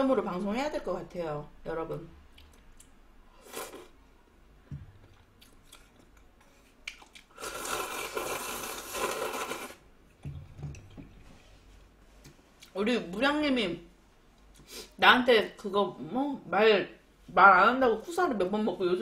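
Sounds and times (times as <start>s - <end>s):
person chewing: 2.3s - 4.0s, 4.9s - 11.3s
slurping noodles: 3.4s - 4.0s, 7.3s - 9.8s.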